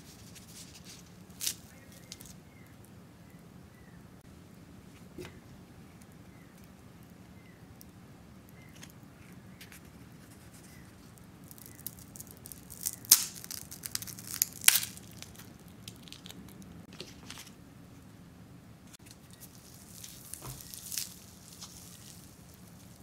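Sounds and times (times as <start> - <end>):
wafer shells crackling: 0.1 - 2.4, 10.7 - 17.5, 19.0 - 23.0.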